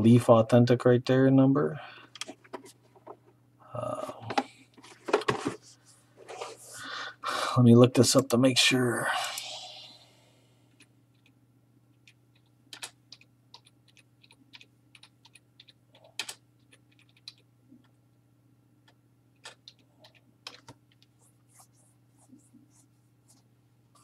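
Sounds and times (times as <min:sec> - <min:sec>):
low steady hum: 0:00.0 - 0:24.0
typing on a computer keyboard: 0:12.0 - 0:18.0, 0:18.8 - 0:21.1.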